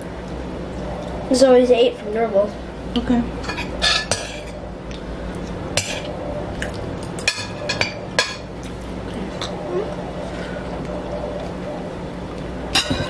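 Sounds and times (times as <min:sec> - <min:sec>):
low steady hum: 0:00.0 - 0:13.0
spoons clinking on ceramic bowls: 0:12.8 - 0:13.0.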